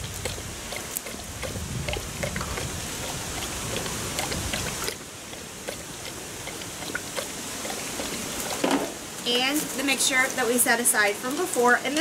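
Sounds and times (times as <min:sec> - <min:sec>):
liquid pouring and splashing: 0:00.0 - 0:09.0.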